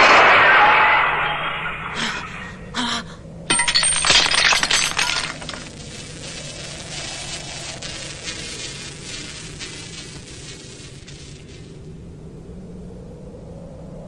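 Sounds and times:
metal parts clattering: 3.5s - 5.7s
faint hiss with light ticks: 5.7s - 12.0s.

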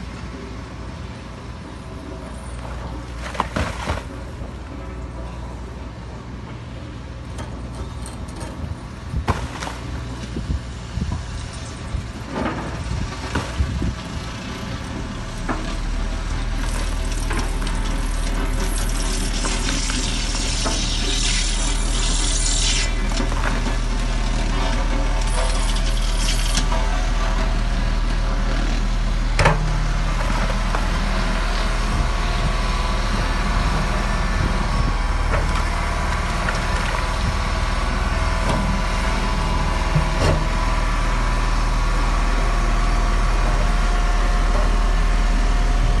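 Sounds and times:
excavator diesel engine running: 9.8s - 46.0s.

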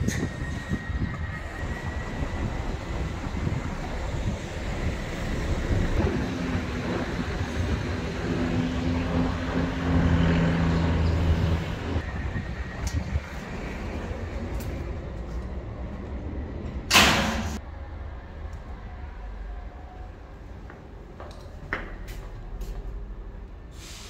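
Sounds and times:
outdoor background noise: 0.0s - 24.0s
vehicle engine hum: 1.4s - 16.9s.

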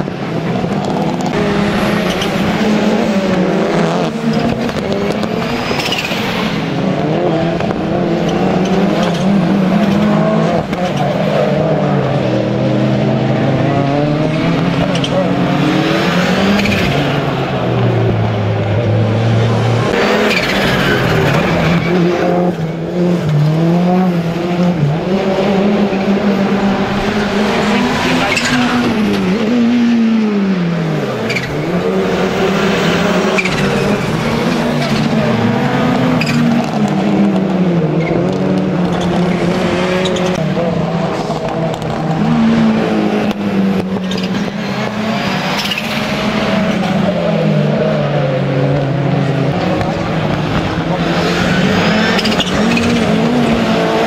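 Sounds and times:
race car engines revving: 0.0s - 54.0s
tyres squealing: 31.1s - 36.9s.

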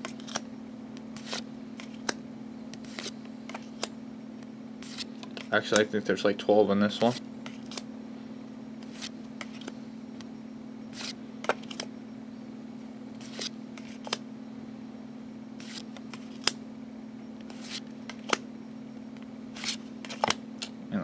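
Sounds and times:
cards snapping and sliding: 0.0s - 0.4s, 1.2s - 3.9s, 4.8s - 5.9s, 7.0s - 7.9s, 8.8s - 9.8s, 10.9s - 11.9s, 13.2s - 14.2s, 15.6s - 16.6s, 17.4s - 18.4s, 19.5s - 20.8s
steady low hum: 0.0s - 21.0s.

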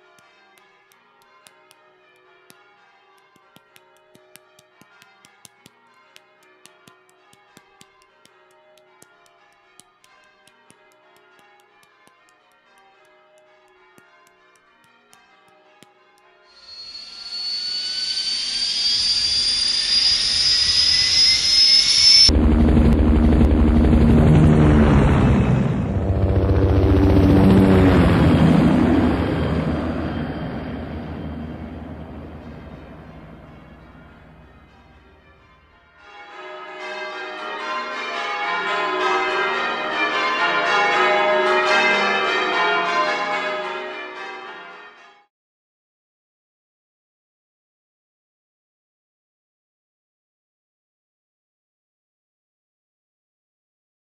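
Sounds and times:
church bells ringing: 0.0s - 17.5s, 26.3s - 45.3s
jet engine spooling up: 16.6s - 34.6s.

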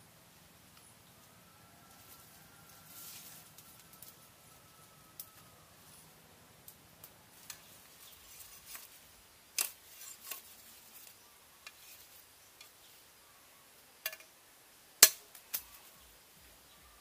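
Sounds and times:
twigs and bamboo snapping: 6.6s - 12.8s, 15.0s - 15.9s.

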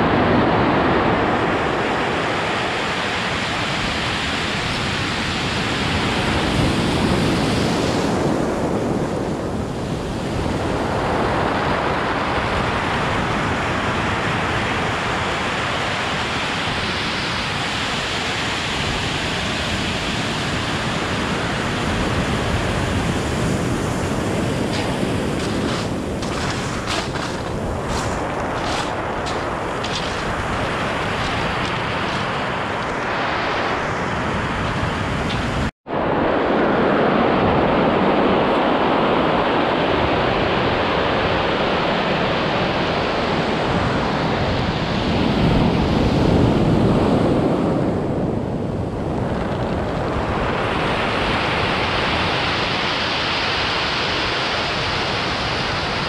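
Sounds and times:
surf on pebble beach: 0.0s - 47.8s, 49.6s - 56.0s
wind on microphone: 0.0s - 56.0s.

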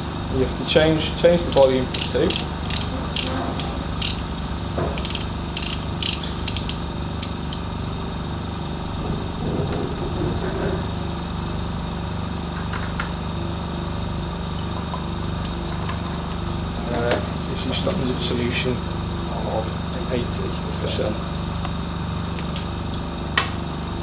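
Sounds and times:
steady low hum: 0.0s - 24.0s
pipette dial ratcheting clicks: 1.3s - 7.7s.

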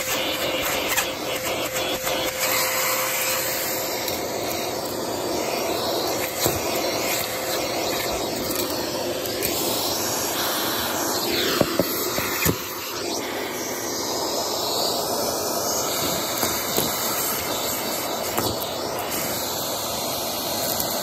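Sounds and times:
brush nozzle rubbing carpet: 0.0s - 13.7s
vacuum cleaner humming: 0.0s - 21.0s.

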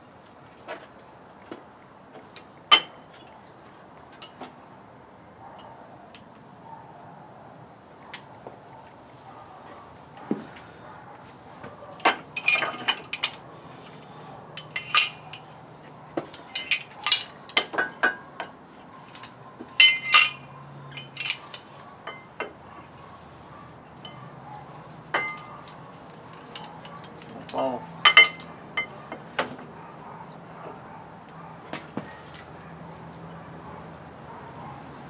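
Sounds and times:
metal parts clinking and clanking: 12.0s - 15.7s, 16.3s - 23.0s, 25.1s - 29.6s.

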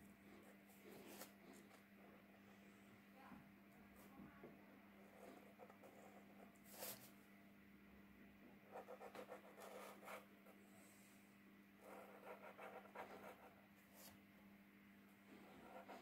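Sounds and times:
low steady hum: 0.0s - 16.0s
marker scratching on paper: 5.1s - 7.1s, 8.7s - 10.2s, 11.8s - 14.1s, 15.4s - 16.0s.

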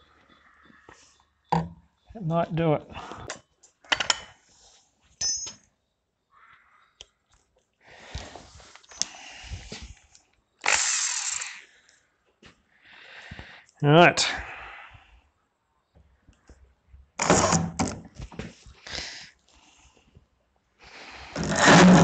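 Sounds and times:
cordless drill running: 10.6s - 11.7s.

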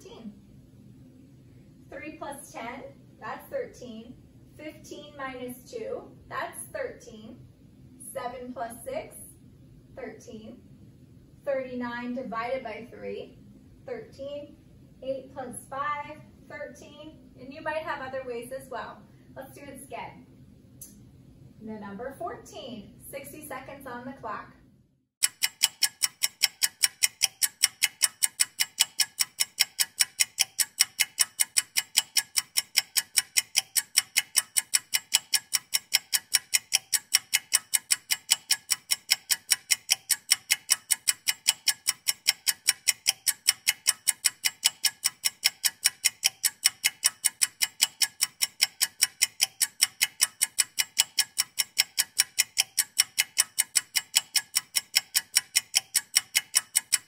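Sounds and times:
clock ticking: 4.6s - 7.2s, 25.2s - 57.0s.

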